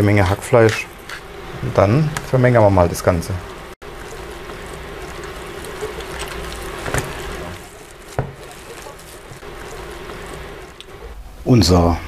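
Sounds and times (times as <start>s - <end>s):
wet squelching of kneaded meat: 3.8s - 11.1s.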